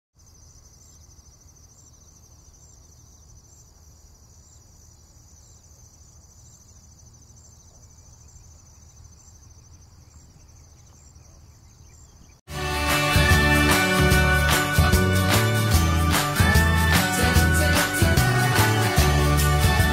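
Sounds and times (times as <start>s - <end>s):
crickets chirring: 0.2s - 12.4s.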